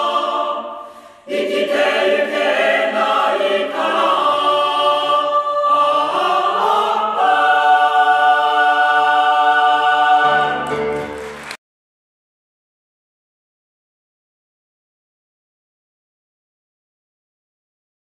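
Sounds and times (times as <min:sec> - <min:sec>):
choir singing held chords: 0:00.0 - 0:11.3.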